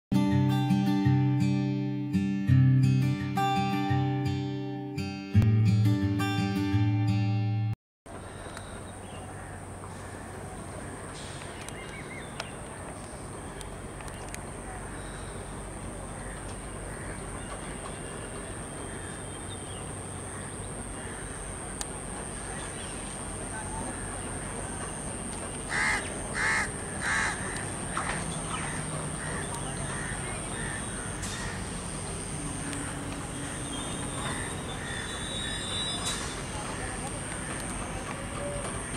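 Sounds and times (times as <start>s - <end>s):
train rumbling into platform: 8.1s - 38.9s
crow cawing: 9.3s - 11.0s, 16.1s - 17.3s, 20.2s - 21.6s, 25.7s - 31.7s, 32.8s - 35.6s.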